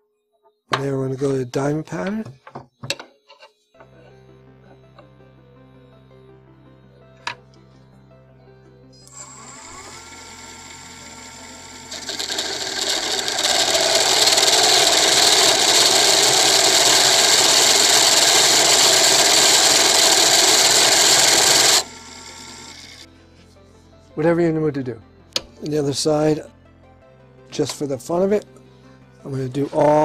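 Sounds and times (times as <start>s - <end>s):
texturing tool grinding wood on lathe: 9.0s - 23.1s.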